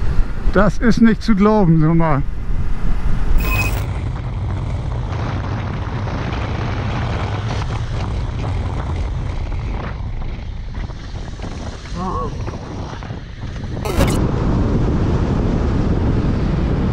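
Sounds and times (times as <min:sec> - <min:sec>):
road noise: 0:00.0 - 0:12.0
wind on microphone: 0:02.2 - 0:16.9.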